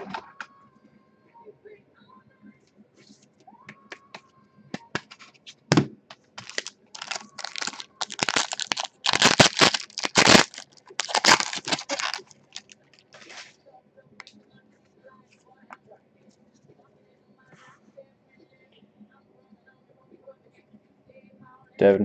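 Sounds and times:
foil wrapper crinkling and tearing: 6.4 - 13.5.

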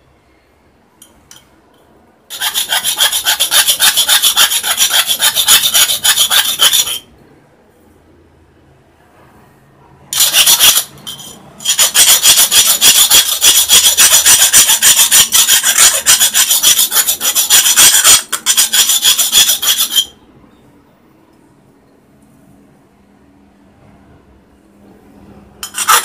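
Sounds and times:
metal file rasping: 2.3 - 7.0, 10.2 - 20.2, 25.6 - 26.0.

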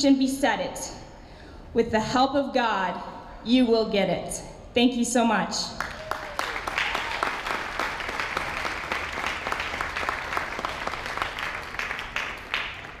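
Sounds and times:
audience applauding: 5.8 - 13.0
close individual claps: 5.8 - 13.0.

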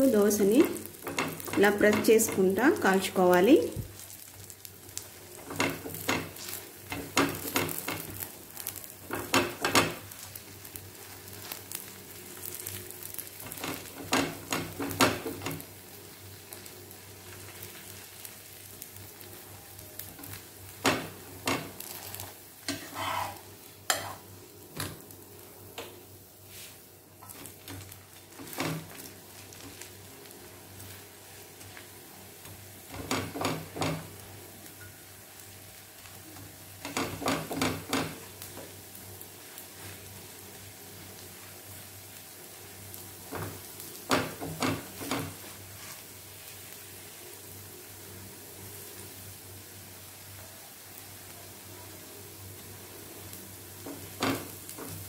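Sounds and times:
dosa sizzling on pan: 0.0 - 55.0
spatula scraping pan: 21.5 - 24.3.

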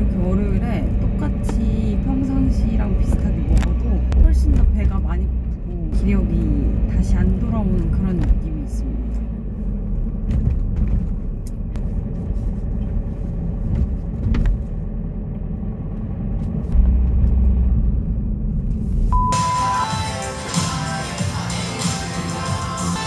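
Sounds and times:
car cabin road rumble: 0.0 - 19.3
short steady beep: 19.1 - 20.0
music: 19.2 - 23.0.

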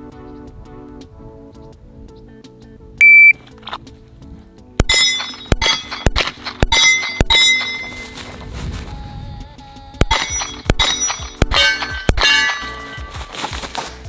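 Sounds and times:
music playing low: 0.0 - 14.0
shot timer beep: 3.0 - 3.4
pistol shots: 4.8 - 8.2, 10.0 - 13.0
steel targets ringing: 4.8 - 8.2, 10.1 - 13.4.

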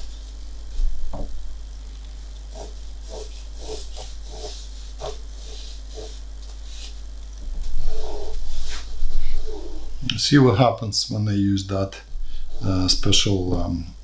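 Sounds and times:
knock: 1.1 - 1.3
pencil scratching on paper: 2.5 - 7.0.

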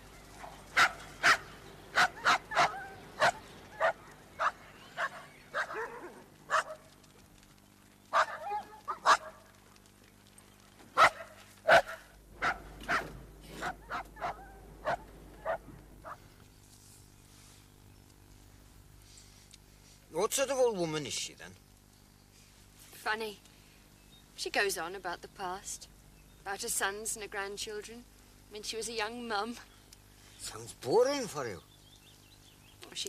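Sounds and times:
dogs barking: 0.2 - 7.0, 8.1 - 9.6, 10.9 - 16.3.

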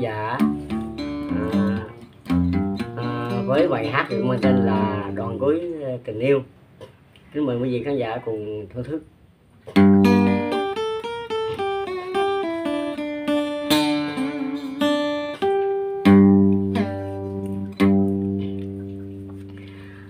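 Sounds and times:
acoustic guitar: 0.0 - 5.6, 9.6 - 20.0.

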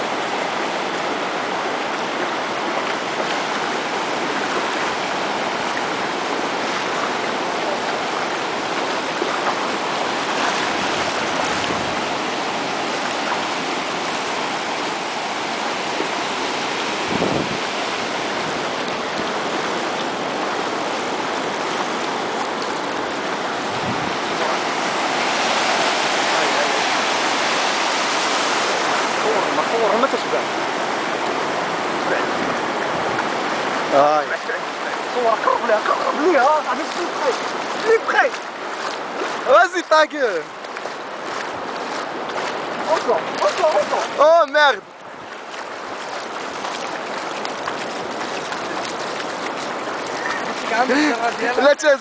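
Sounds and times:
ocean surf breaking on sand: 0.0 - 52.0.

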